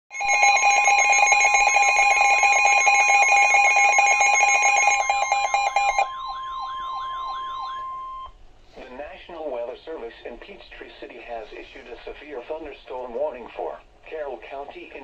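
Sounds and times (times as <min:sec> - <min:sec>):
steady warning tone: 0:00.1 - 0:08.4.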